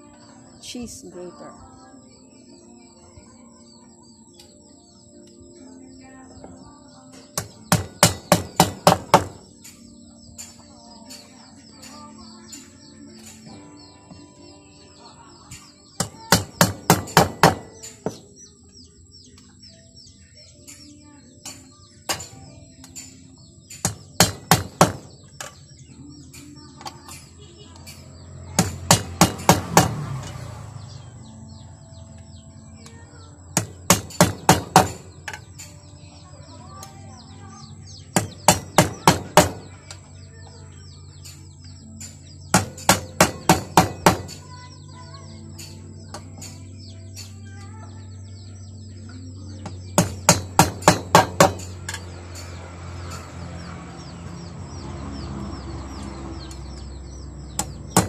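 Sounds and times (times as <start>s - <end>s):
hammer striking a nail: 7.4s - 9.5s, 16.0s - 18.3s, 23.7s - 25.6s, 27.8s - 30.2s, 33.6s - 35.5s, 38.1s - 39.7s, 42.0s - 44.4s, 49.6s - 53.3s, 57.5s - 58.0s.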